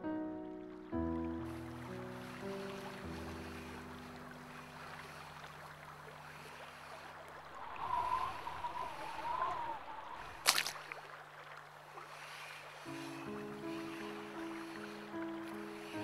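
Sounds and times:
wavering tone: 7.6 - 10.4.

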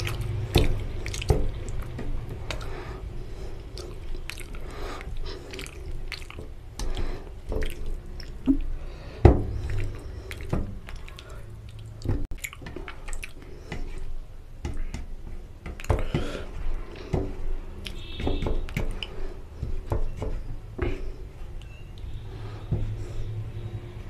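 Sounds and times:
fingers squelching rice and curry: 0.0 - 8.8
wet chewing and mouth smacks: 0.0 - 8.8, 9.5 - 14.2.

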